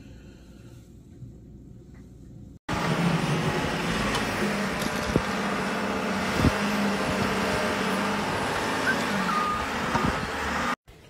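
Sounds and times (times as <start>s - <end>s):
wheel loader diesel engine under load: 2.7s - 10.8s.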